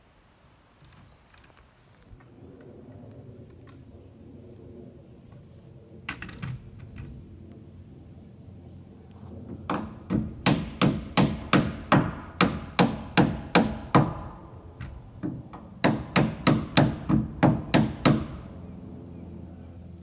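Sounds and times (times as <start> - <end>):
hammer driving nails into wood: 9.7 - 18.4.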